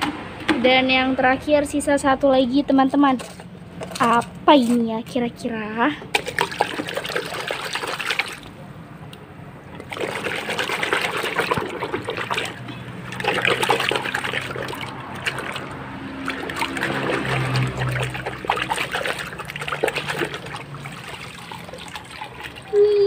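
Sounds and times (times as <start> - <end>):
water splashing in plastic basin: 6.1 - 8.6, 9.7 - 23.0.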